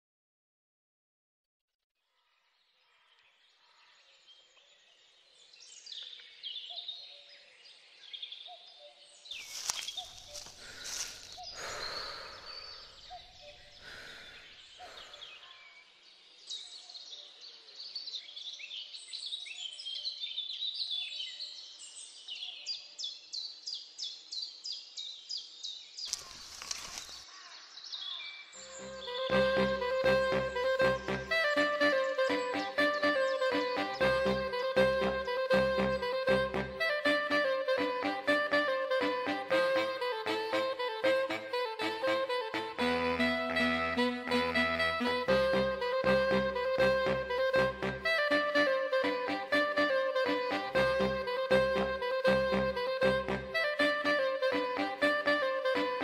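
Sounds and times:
birds chirping and calling: 8.5 - 15.7.

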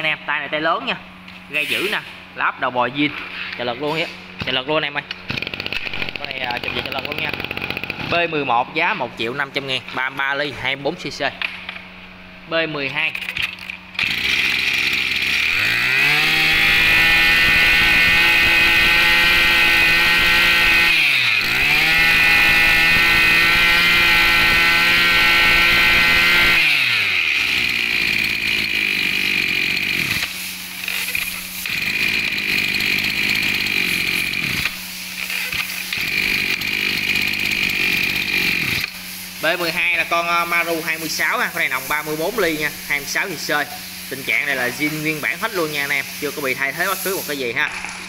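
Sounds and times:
brush cutter engine revving: 5.2 - 8.4, 13.4 - 48.0.

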